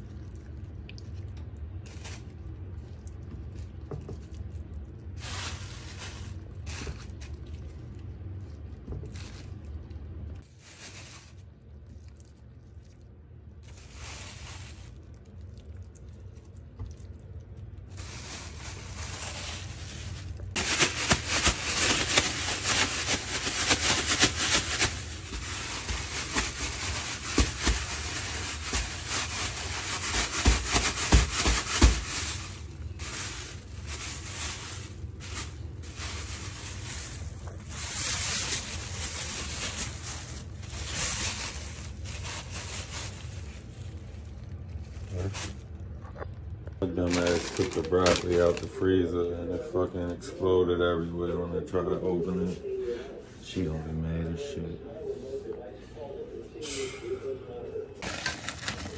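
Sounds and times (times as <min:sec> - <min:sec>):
plastic bag rustling: 0:01.6 - 0:12.9, 0:13.5 - 0:48.9, 0:58.0 - 0:58.9
chicken thumping inside bag: 0:18.0 - 0:35.5, 0:47.1 - 0:48.7, 0:58.0 - 0:58.9.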